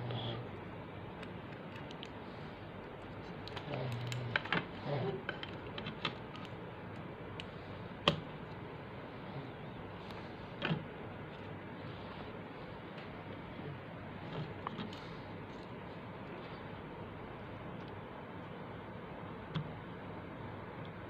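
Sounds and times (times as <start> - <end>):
plastic clicks and rustling: 3.0 - 7.1.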